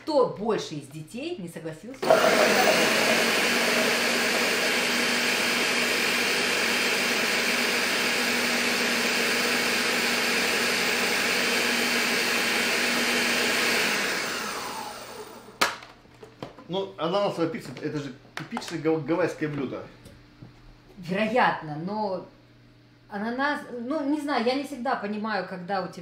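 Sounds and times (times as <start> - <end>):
blender running: 2.0 - 15.8.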